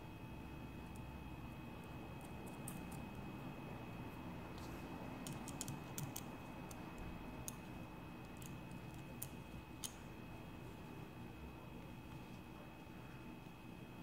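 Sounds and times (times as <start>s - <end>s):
small metal parts clicking: 5.2s - 6.8s.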